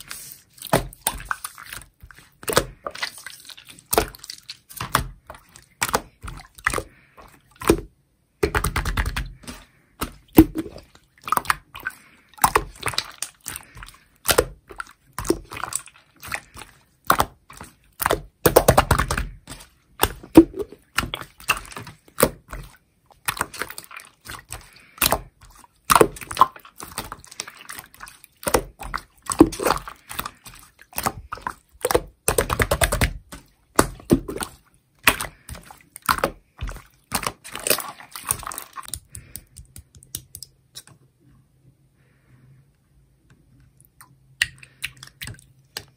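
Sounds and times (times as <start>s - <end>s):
slime squelching with sticky clicks: 0.0s - 41.2s, 43.2s - 45.9s.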